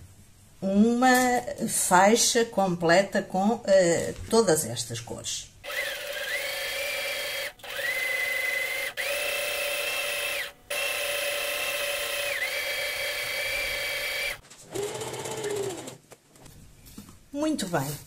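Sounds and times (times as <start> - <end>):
sewing machine motor whining: 5.7 - 16.0.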